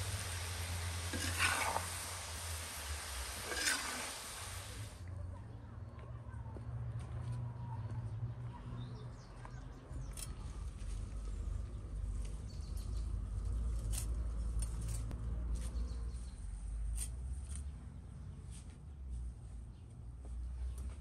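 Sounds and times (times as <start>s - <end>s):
leaves rustling: 0.0s - 5.0s.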